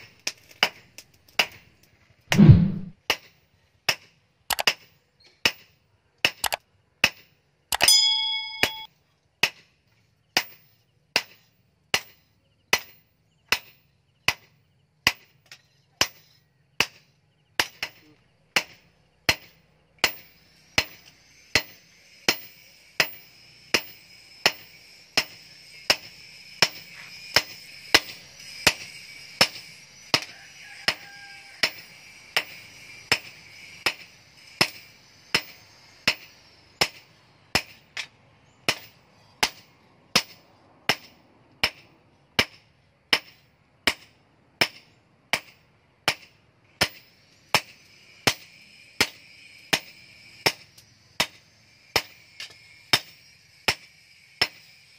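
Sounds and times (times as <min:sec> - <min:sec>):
hammer striking steel on anvil: 0:07.8 - 0:08.9.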